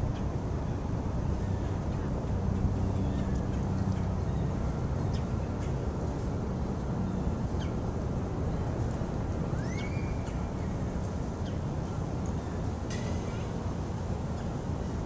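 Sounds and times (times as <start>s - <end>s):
steady low rumble: 0.0s - 15.0s
bird calls: 9.6s - 10.8s.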